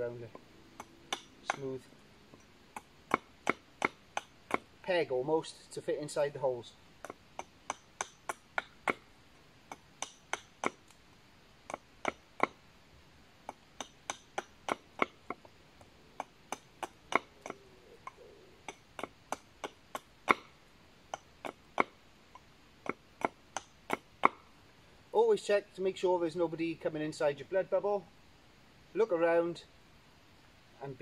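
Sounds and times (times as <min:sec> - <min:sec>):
axe chopping wood: 0:00.8 - 0:01.7, 0:02.7 - 0:04.7, 0:07.0 - 0:09.0, 0:09.7 - 0:11.0, 0:11.7 - 0:12.6, 0:13.4 - 0:15.4, 0:16.2 - 0:17.6, 0:18.6 - 0:20.5, 0:22.8 - 0:24.4.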